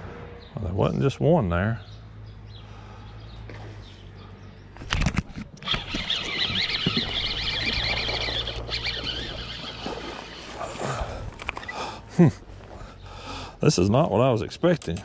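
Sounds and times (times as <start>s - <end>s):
water splashing from fish: 5.7s - 11.6s.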